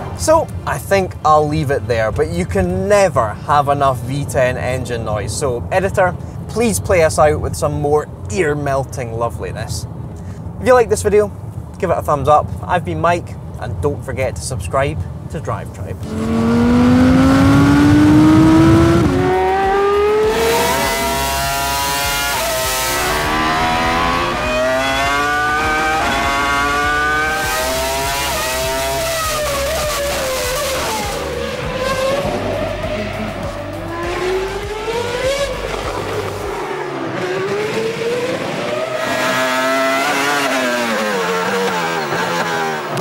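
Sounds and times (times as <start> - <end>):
racing engines at high revs: 16.0 - 43.0.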